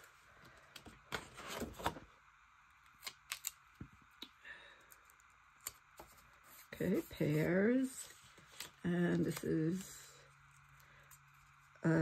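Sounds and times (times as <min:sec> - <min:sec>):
paper sticker sheet rustling: 0:05.6 - 0:11.8.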